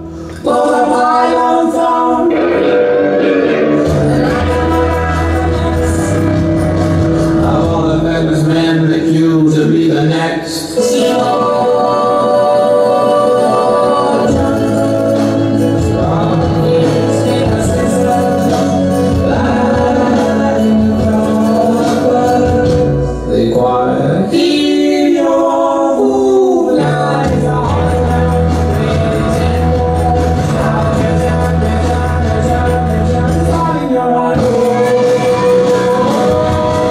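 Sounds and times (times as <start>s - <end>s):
dance music with singing: 0.0s - 36.9s.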